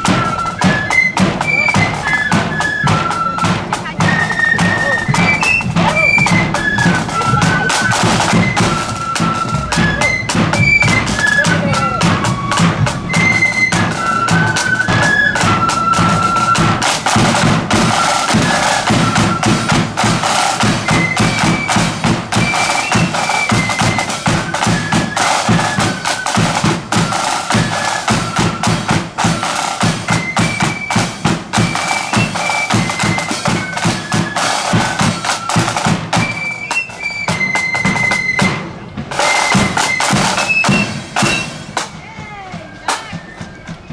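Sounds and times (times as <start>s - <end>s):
flute melody: 0.0s - 43.9s
side-drum rolls: 0.0s - 43.9s
bass drum: 3.9s - 13.3s.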